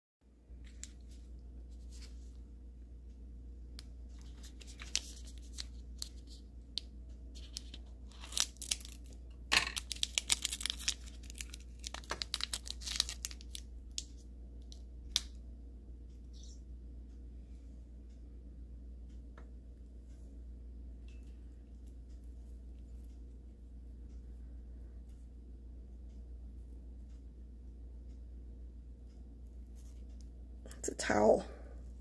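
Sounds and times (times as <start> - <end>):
wrapper tearing and crinkling: 7.4 - 13.6.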